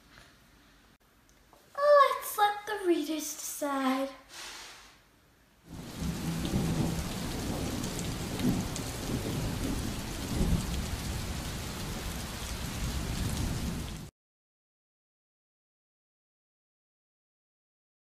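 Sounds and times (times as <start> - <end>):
rolling thunder: 5.7 - 14.1
steady rain: 5.7 - 14.1.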